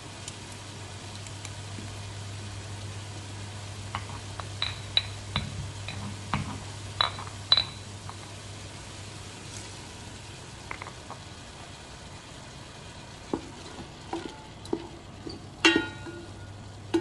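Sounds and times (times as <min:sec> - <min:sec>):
steady low hum: 0:00.0 - 0:17.0
kitchenware clinking: 0:04.0 - 0:07.8, 0:14.1 - 0:17.0.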